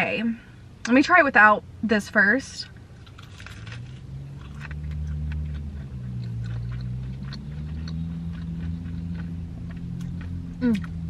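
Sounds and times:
low steady hum: 0:00.0 - 0:11.0
crunchy chewing: 0:02.6 - 0:11.0.

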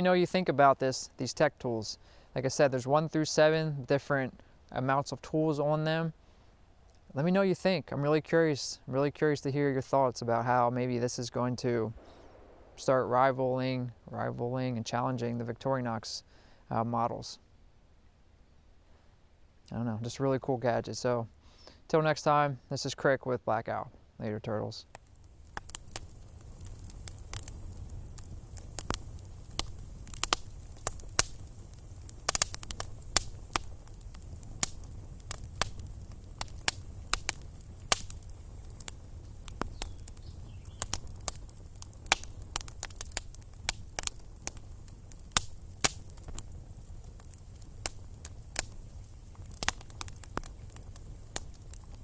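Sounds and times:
campfire crackling: 0:00.0 - 0:52.0
low steady rumble: 0:11.7 - 0:14.8.

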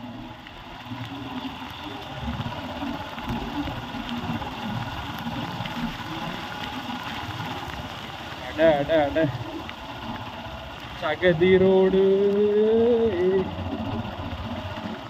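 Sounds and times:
motorcycle engine running: 0:00.0 - 0:15.0
road noise: 0:05.6 - 0:12.4.

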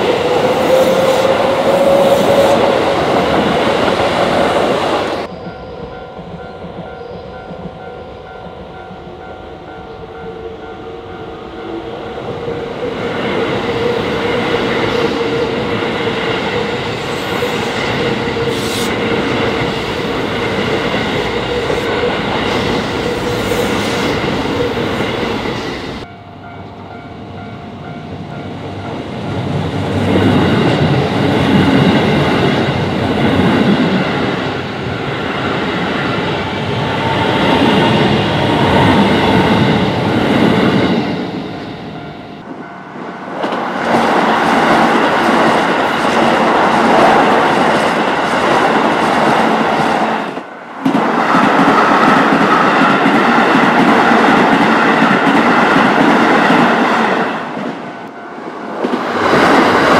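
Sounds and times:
level crossing warning bells: 0:05.2 - 0:29.2.

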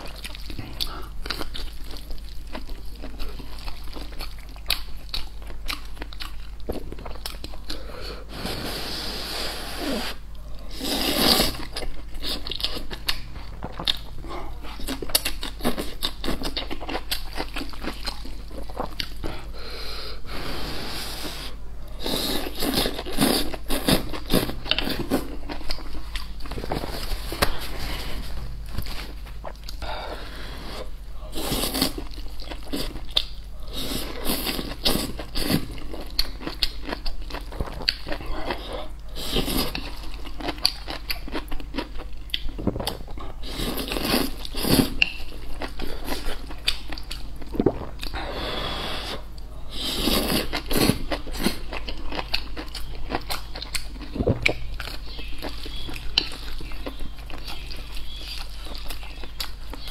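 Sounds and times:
wet chewing and smacking: 0:00.0 - 0:07.8, 0:11.6 - 0:19.4, 0:34.4 - 0:48.2, 0:50.4 - 0:59.9.

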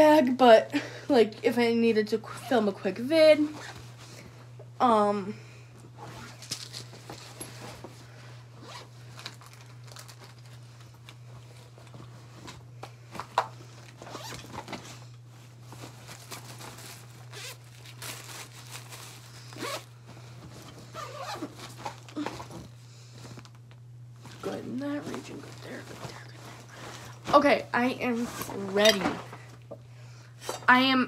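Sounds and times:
steady low hum: 0:00.0 - 0:31.0
rustling of things in a bag: 0:05.8 - 0:29.7
zippers pulled open and shut: 0:08.6 - 0:08.9, 0:14.0 - 0:15.0, 0:17.3 - 0:17.6, 0:19.5 - 0:19.9, 0:20.9 - 0:22.0.

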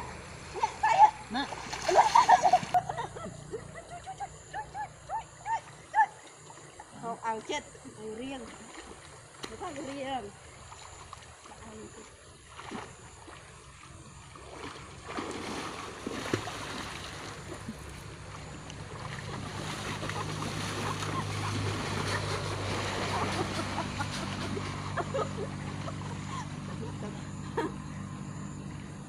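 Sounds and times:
water splashing from swimmers: 0:00.0 - 0:02.8, 0:08.2 - 0:24.7
low motor hum: 0:00.0 - 0:29.0.

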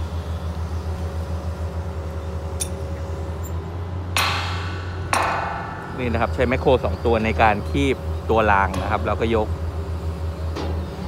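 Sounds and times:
excavator diesel engine: 0:00.0 - 0:11.0
metallic clangs: 0:04.2 - 0:07.8.

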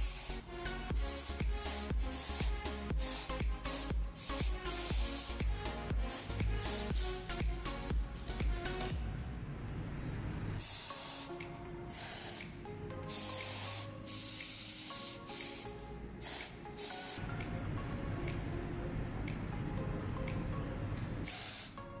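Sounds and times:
sprayer hissing bursts: 0:00.0 - 0:07.3, 0:10.6 - 0:17.2, 0:21.2 - 0:21.8
soft background music: 0:00.0 - 0:22.0.

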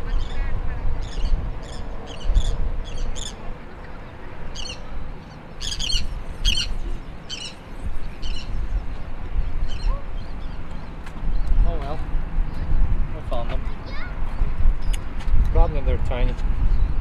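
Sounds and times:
birds chirping and squawking: 0:00.0 - 0:12.8
wind rumble on microphone: 0:00.0 - 0:17.0.

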